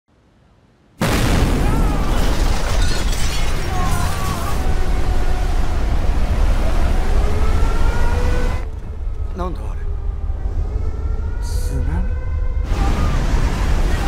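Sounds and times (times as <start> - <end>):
loud explosion blast: 1.0 - 4.3
heavy low rumble: 4.6 - 14.0.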